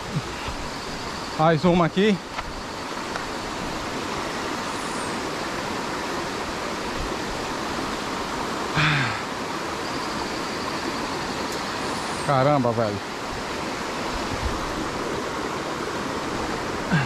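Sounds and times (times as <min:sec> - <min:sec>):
stream and waterfall rushing: 0:00.0 - 0:17.0
brief grunt: 0:08.8 - 0:09.2.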